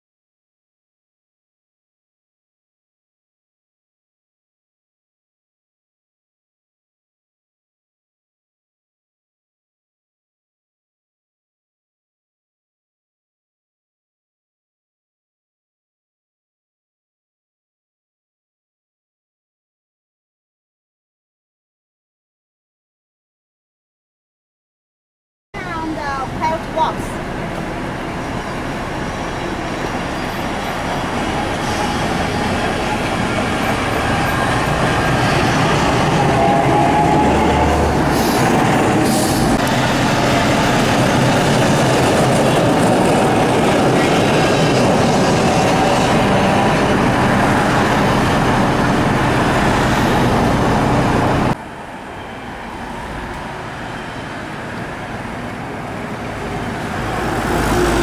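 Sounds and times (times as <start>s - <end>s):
road traffic: 25.6s - 58.0s
tram running on rails: 25.6s - 58.0s.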